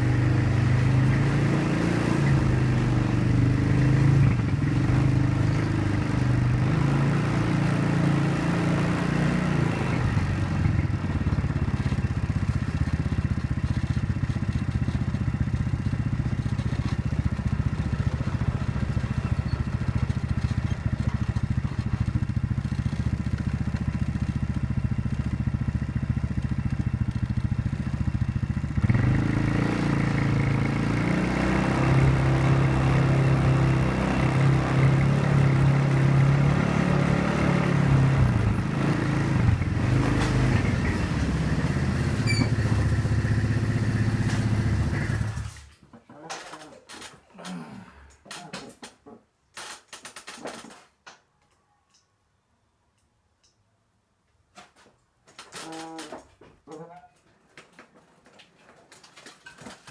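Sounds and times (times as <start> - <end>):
quad bike engine running: 0.0 - 46.6.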